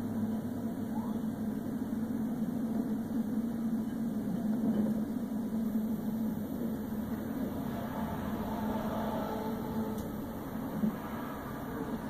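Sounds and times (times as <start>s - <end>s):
vehicle engine drone: 0.0s - 12.0s
road noise: 5.5s - 12.0s.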